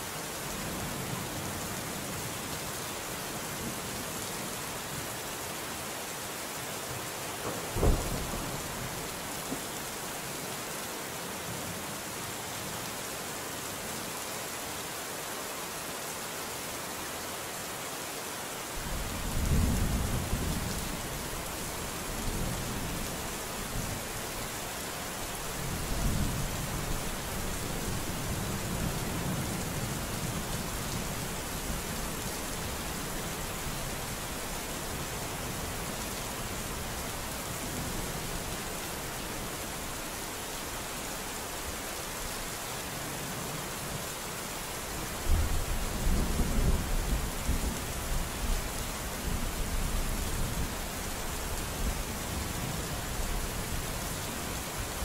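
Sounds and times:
steady rain falling: 0:00.0 - 0:55.0
thunder rumbling: 0:07.6 - 0:08.8.

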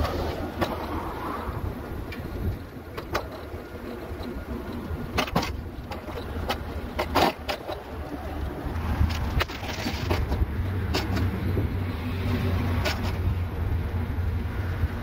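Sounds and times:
sharp knocks and rattles: 0:02.9 - 0:08.3, 0:09.0 - 0:11.6.

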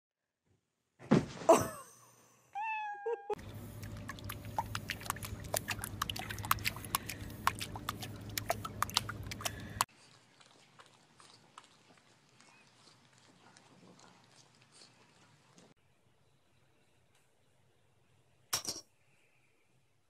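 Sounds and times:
low hum: 0:03.4 - 0:09.9
paws splashing water: 0:03.4 - 0:15.8.

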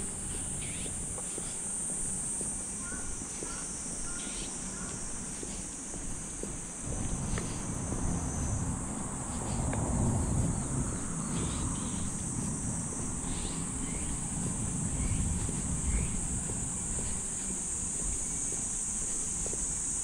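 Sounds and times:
cicadas chorus: 0:00.0 - 0:20.0
low rumble: 0:06.8 - 0:18.8.

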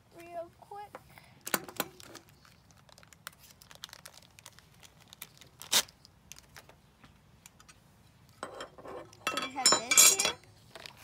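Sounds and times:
plastic bag crinkling: 0:01.8 - 0:06.7.

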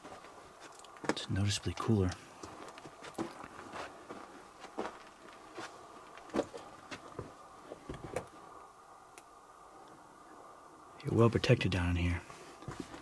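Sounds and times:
footsteps on gravel: 0:00.0 - 0:08.2.

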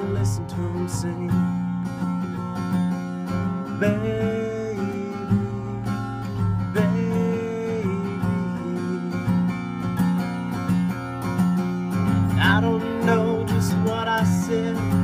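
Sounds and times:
man singing wordless notes: 0:00.0 - 0:01.6, 0:03.8 - 0:09.6, 0:12.3 - 0:15.0
acoustic guitar strumming: 0:00.0 - 0:15.0.

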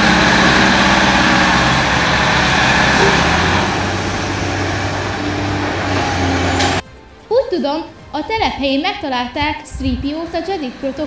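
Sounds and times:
heavy machine running: 0:00.0 - 0:06.8, 0:09.7 - 0:11.0.

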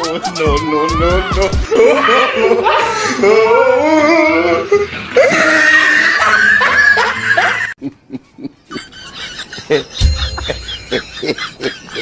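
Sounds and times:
young man wailing: 0:00.0 - 0:07.2.

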